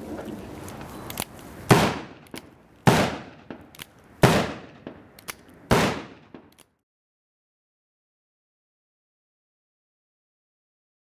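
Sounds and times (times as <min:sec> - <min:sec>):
revolver gunshots: 0:01.7 - 0:06.5
revolver hammer cocking clicks: 0:02.2 - 0:02.5, 0:03.5 - 0:04.1, 0:04.8 - 0:05.6.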